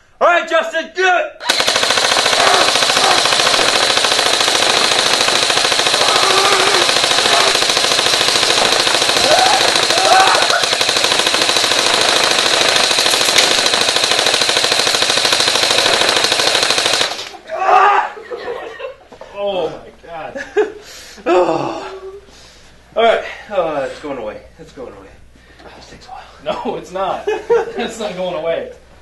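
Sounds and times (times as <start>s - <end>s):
airsoft machine gun firing full auto: 1.4s - 17.4s.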